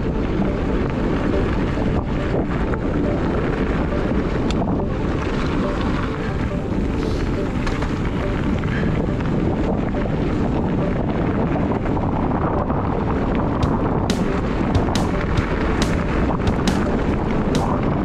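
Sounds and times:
bike tyres rolling on gravel: 0.0 - 18.0
wind buffeting microphone: 0.0 - 18.0.

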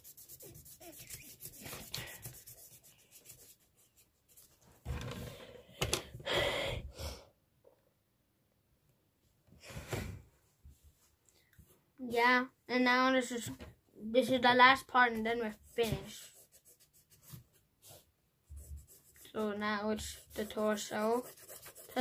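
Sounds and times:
blending stump rubbing on paper: 0.0 - 4.5, 15.4 - 22.0.

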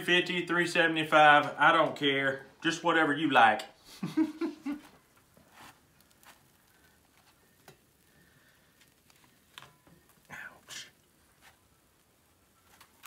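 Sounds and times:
faint clicks and taps: 4.8 - 8.1.

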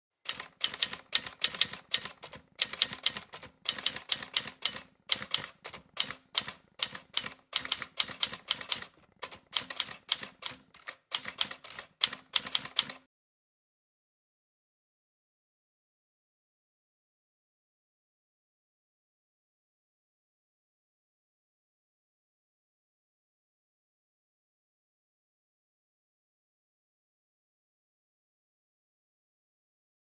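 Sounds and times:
typewriter key clacks: 0.3 - 13.0.

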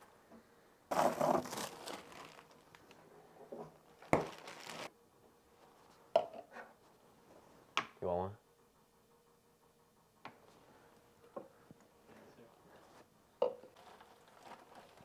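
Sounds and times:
crinkling rustle: 0.9 - 3.0, 3.8 - 4.9, 13.7 - 15.0.

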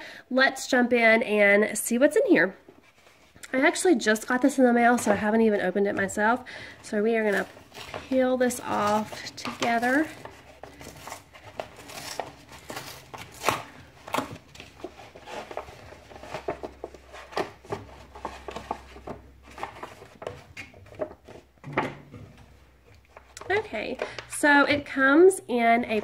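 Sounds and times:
paper rustling and crackling: 7.2 - 24.3.

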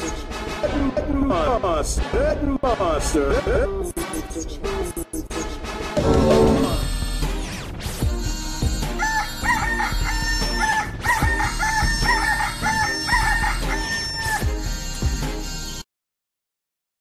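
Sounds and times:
high synth lead: 6.0 - 7.1.

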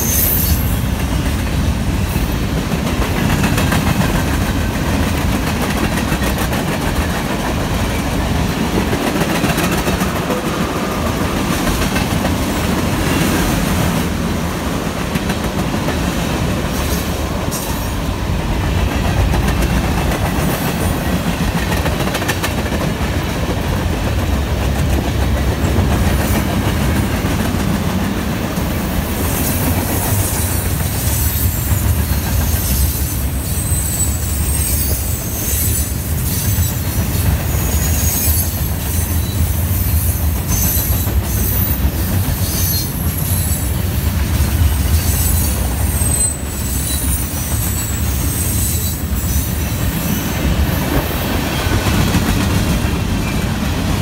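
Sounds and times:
freight train cars rumbling: 0.0 - 54.0
high-pitched wheel squeal: 32.6 - 36.7, 45.0 - 49.6.

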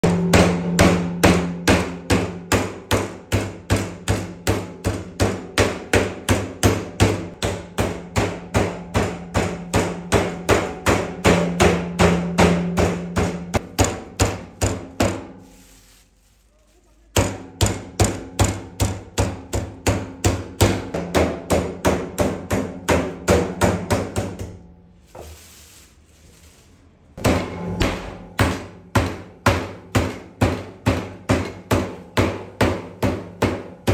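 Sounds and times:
meat tenderizer pounding beef: 17.2 - 24.6.

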